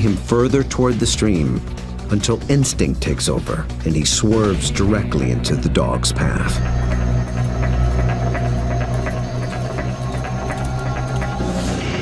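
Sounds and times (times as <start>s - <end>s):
sustained low notes: 3.6s - 11.9s
regular percussion beat: 6.6s - 12.0s.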